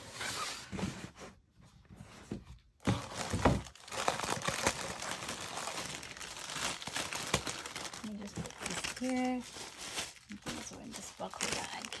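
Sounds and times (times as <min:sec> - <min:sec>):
wrapping rustling and crinkling: 0:02.8 - 0:12.0.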